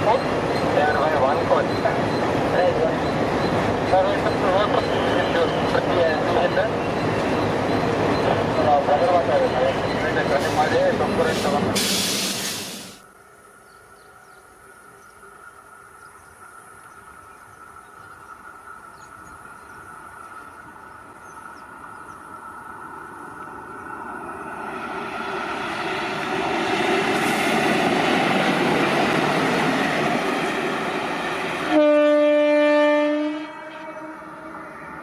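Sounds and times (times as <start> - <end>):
train passing on rails: 0.0 - 35.0
train horn blast: 31.6 - 34.6.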